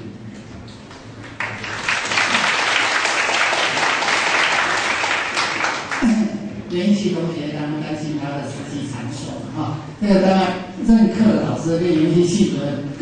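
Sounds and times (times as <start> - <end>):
audience applause: 1.2 - 6.1.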